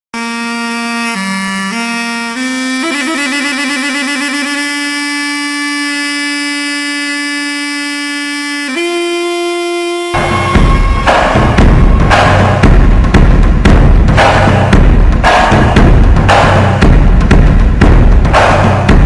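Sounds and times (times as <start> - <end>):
reedy wind instrument melody: 0.2 - 13.2
loud drums: 10.2 - 19.0.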